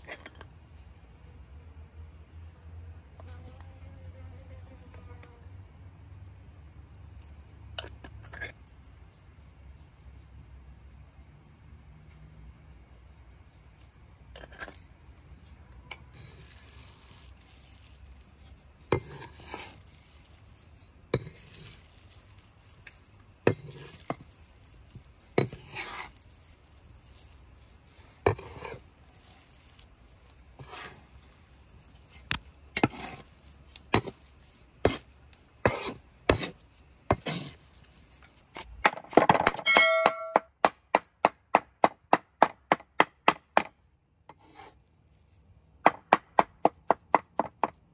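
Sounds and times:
blade scraping board: 18.9s - 19.8s, 25.4s - 26.2s, 28.2s - 28.9s, 30.6s - 31.1s, 32.2s - 34.2s, 34.8s - 37.6s, 44.3s - 44.8s
steel blade clanging: 39.6s - 40.4s.

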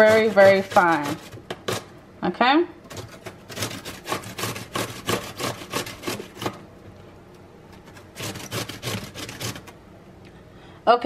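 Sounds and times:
cucumber grating on metal grater: 0.0s - 1.9s, 2.9s - 6.6s, 7.8s - 9.8s.

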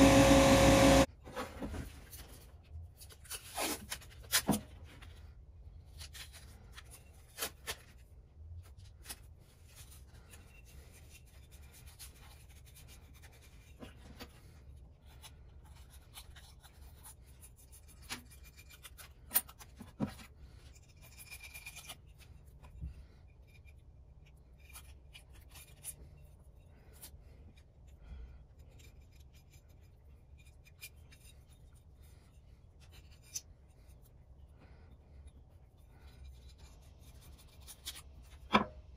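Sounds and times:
tape scraping and rubbing: 0.1s - 27.5s.

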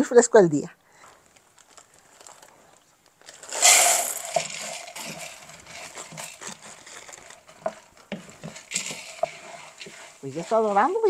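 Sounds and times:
pasta sizzling in hot oil: 3.4s - 11.0s
wooden spoon knocking: 4.2s - 11.0s.

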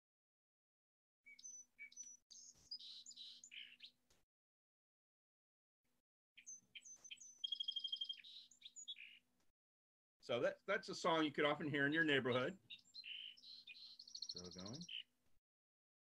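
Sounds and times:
song sparrow song: 1.2s - 4.2s, 6.4s - 9.5s, 10.2s - 15.4s.

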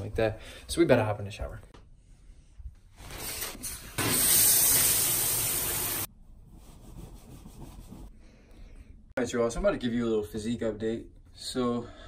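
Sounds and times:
water running from faucet: 4.0s - 6.1s
towel rubbing: 6.4s - 8.1s.

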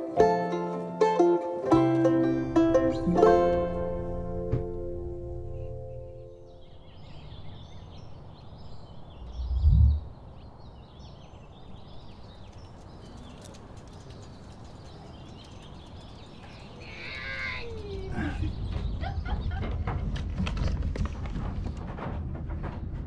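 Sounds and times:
low outdoor rumble: 2.0s - 10.7s
heavy low thump: 2.6s - 6.1s, 9.2s - 10.2s
small birds chirping: 5.2s - 19.6s.

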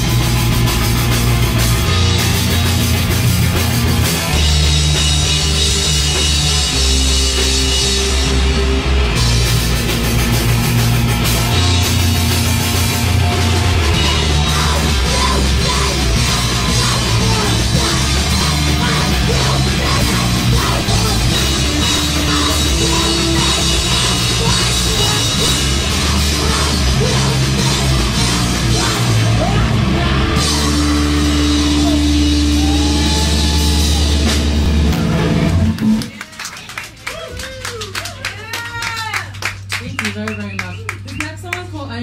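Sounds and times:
drum kit: 0.0s - 37.5s
punk band playing live: 0.0s - 42.0s
scattered clapping: 35.5s - 41.8s.

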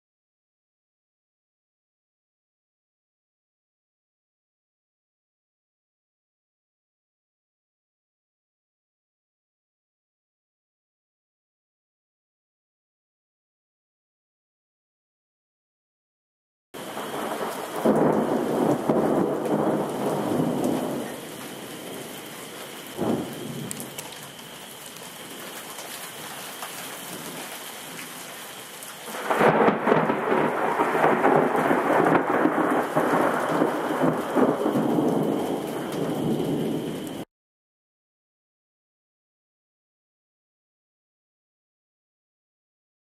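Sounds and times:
sharp thunder crack: 16.8s - 22.0s, 23.0s - 24.0s, 29.2s - 37.2s
rolling thunder: 16.8s - 22.2s, 22.8s - 24.4s, 29.1s - 37.2s
heavy rain: 16.8s - 37.3s.

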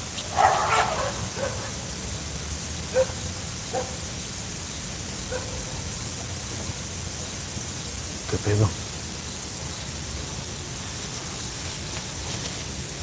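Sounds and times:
steady hiss: 0.0s - 13.0s
dogs barking: 0.2s - 1.9s, 2.9s - 4.1s, 5.3s - 5.8s.

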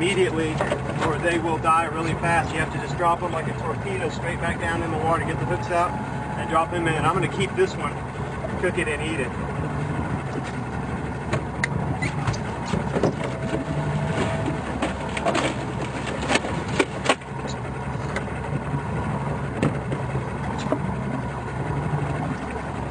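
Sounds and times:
boat engine idling: 0.0s - 22.9s
sharp knocks and clicks: 11.2s - 18.3s, 19.6s - 20.9s.

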